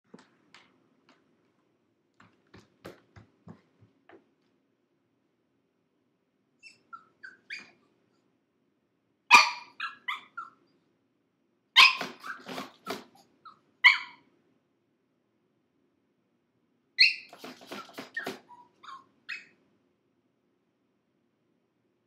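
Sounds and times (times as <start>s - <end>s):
puppy yelping and barking: 6.6s - 7.9s, 9.3s - 10.7s, 11.8s - 14.3s, 17.0s - 19.6s
puppy whining: 6.6s - 8.0s, 9.3s - 10.7s, 11.8s - 14.3s, 17.0s - 19.6s.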